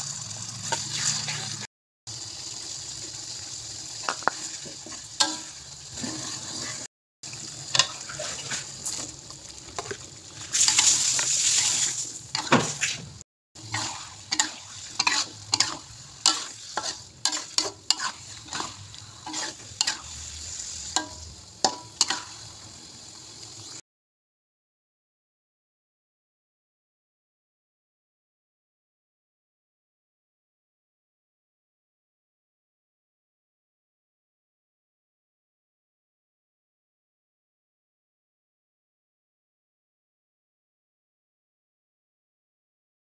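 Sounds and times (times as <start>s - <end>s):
food sizzling in a wok: 0.0s - 23.8s
metal spatula scraping a wok: 0.5s - 1.7s, 4.4s - 6.9s, 7.6s - 22.9s.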